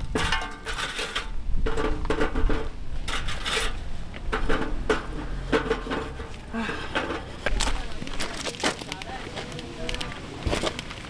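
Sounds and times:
objects rubbing and scraping: 0:00.0 - 0:11.0.

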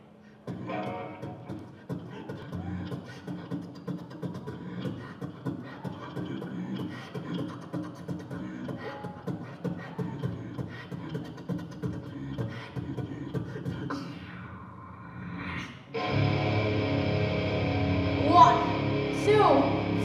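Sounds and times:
beatboxing into a microphone: 0:00.4 - 0:15.9.

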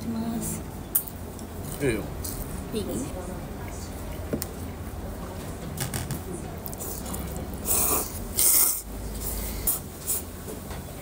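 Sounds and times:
person slurping noodles: 0:06.8 - 0:10.3.

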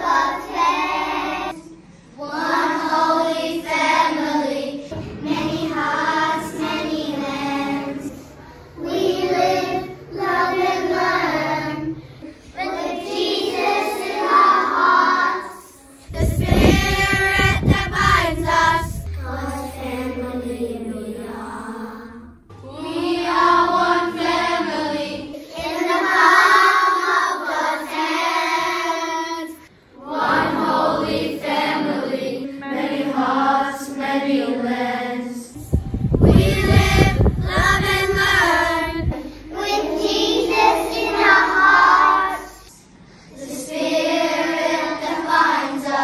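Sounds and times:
children singing together: 0:00.0 - 0:46.0
low rumble: 0:16.0 - 0:24.6, 0:35.5 - 0:41.6.

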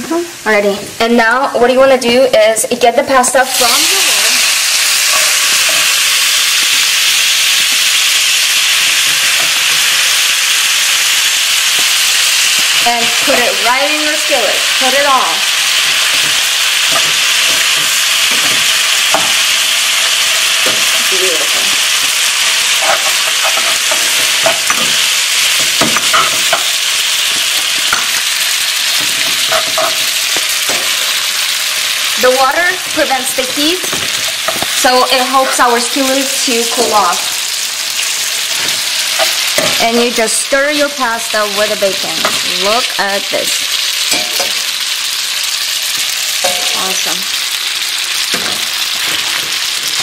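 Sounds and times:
fat sizzling in a skillet: 0:02.8 - 0:50.0
metal utensil scraping a pan: 0:03.6 - 0:06.4, 0:15.6 - 0:31.5, 0:43.9 - 0:44.8, 0:46.4 - 0:47.2.

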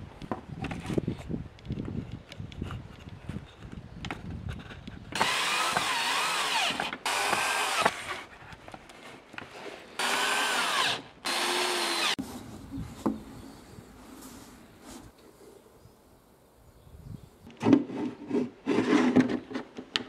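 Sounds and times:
cordless drill into wood: 0:05.2 - 0:08.2, 0:10.0 - 0:12.2.

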